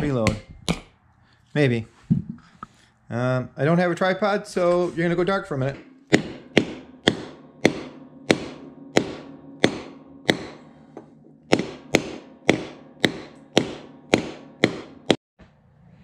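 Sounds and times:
hammer striking metal socket: 0:06.0 - 0:15.2.

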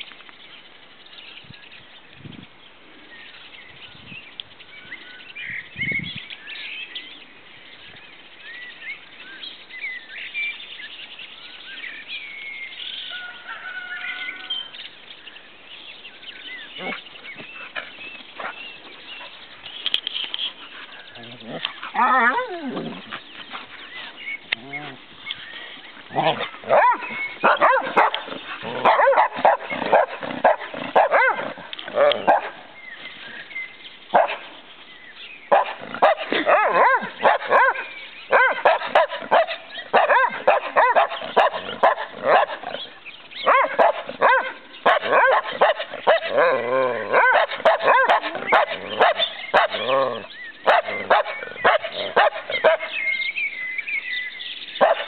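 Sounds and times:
dogs barking and yipping: 0:16.8 - 0:32.8, 0:34.1 - 0:34.5, 0:35.5 - 0:53.3, 0:54.8 - 0:55.0.

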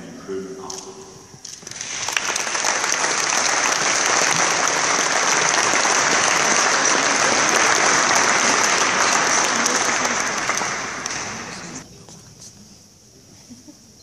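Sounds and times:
audience applauding: 0:01.6 - 0:11.8.

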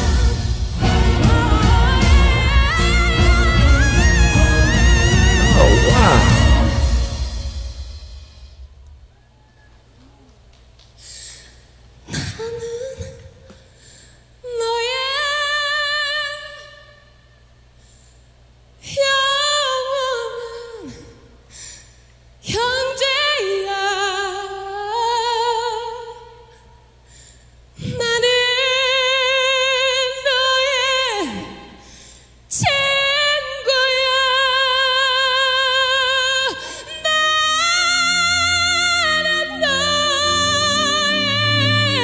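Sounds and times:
woman singing with vibrato: 0:00.0 - 0:07.1, 0:14.4 - 0:17.0, 0:18.8 - 0:21.3, 0:22.4 - 0:26.5, 0:27.8 - 0:31.8, 0:32.5 - 0:42.0
singer breathing: 0:05.6 - 0:06.5, 0:11.0 - 0:11.8, 0:13.7 - 0:14.4, 0:17.7 - 0:18.5, 0:21.4 - 0:22.3, 0:26.9 - 0:27.8, 0:31.7 - 0:32.5.

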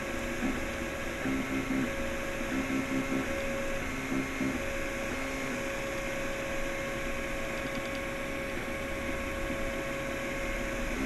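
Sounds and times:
cooling fans whirring: 0:00.0 - 0:11.0
stepper motors whining: 0:00.4 - 0:05.8.

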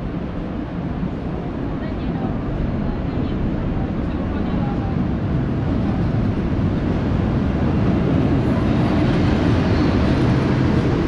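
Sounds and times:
train rumbling on tracks: 0:00.0 - 0:11.0.

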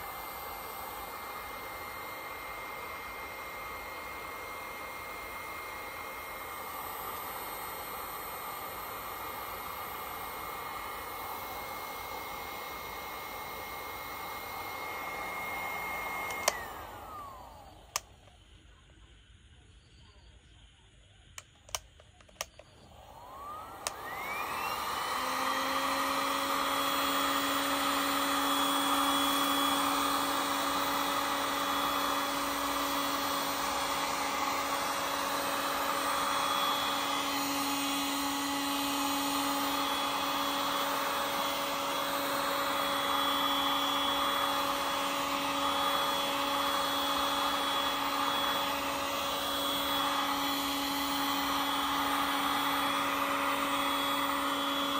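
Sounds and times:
heat gun fan whining: 0:00.0 - 0:18.5, 0:21.4 - 0:54.9
clicks: 0:21.4 - 0:22.9.

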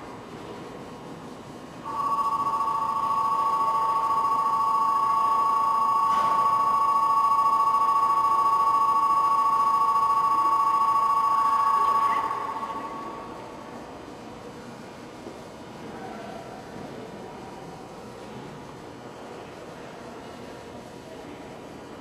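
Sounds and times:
electronic departure bell ringing: 0:01.8 - 0:13.6.

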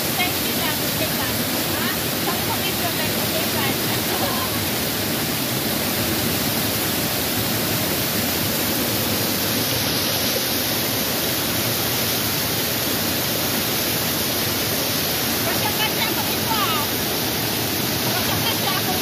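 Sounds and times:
waterfall rushing over boulders: 0:00.0 - 0:19.0.

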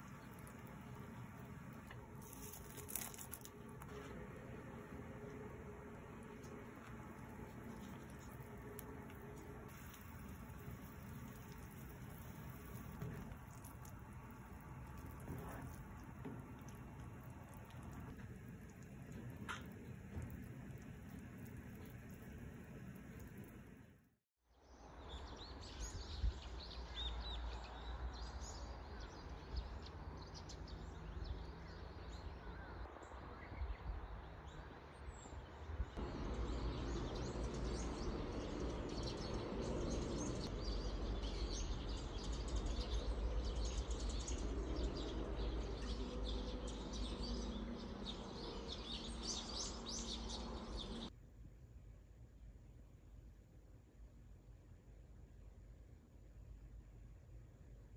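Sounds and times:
small birds chirping: 0:36.0 - 0:51.1.

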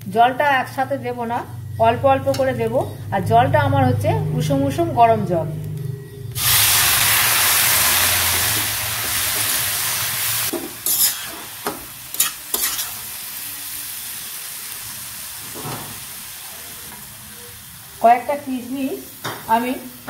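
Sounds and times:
food sizzling in pan: 0:05.5 - 0:20.0
metal spatula scraping pan: 0:10.8 - 0:13.1.

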